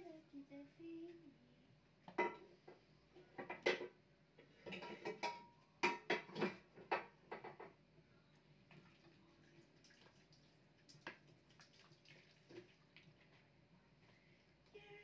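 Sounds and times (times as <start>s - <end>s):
pots and dishes clattering: 2.1s - 7.8s.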